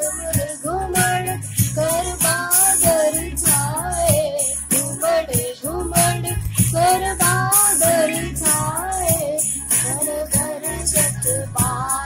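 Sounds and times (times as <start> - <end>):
high voice singing: 0.0 - 12.0
steady drum beat: 0.0 - 12.0.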